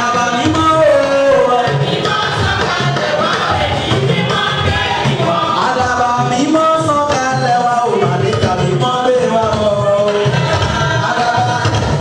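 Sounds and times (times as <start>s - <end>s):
congregation singing: 0.0s - 12.0s
drums and hand percussion: 0.0s - 12.0s.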